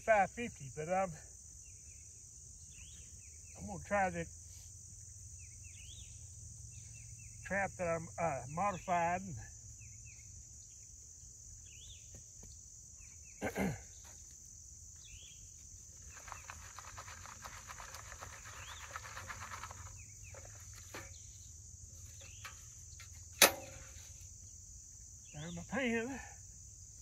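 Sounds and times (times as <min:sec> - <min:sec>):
crickets and insects droning: 0:00.0 - 0:27.0
dirt being sifted rustling: 0:15.8 - 0:23.2
loud sharp click: 0:23.4 - 0:23.8.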